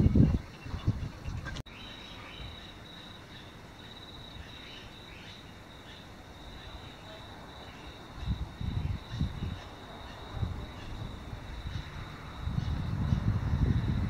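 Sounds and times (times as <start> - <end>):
low buffeting noise: 8.0 - 14.0.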